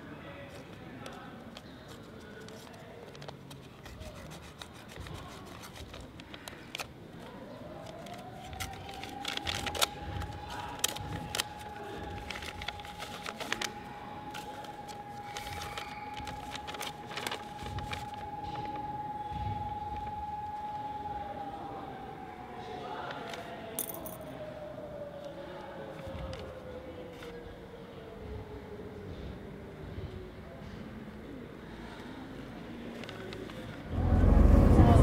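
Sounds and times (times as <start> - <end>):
paper rustling and crackling: 0.5 - 18.8, 25.9 - 27.4
steady high tone: 33.9 - 35.0.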